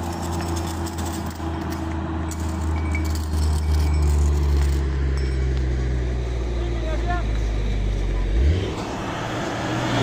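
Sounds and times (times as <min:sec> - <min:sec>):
metallic clinks of strap ratchet: 0:00.0 - 0:05.6
truck engine droning: 0:00.0 - 0:10.0.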